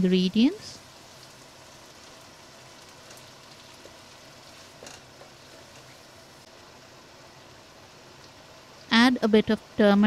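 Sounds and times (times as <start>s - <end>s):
meat sizzling in oil: 0.1s - 6.5s.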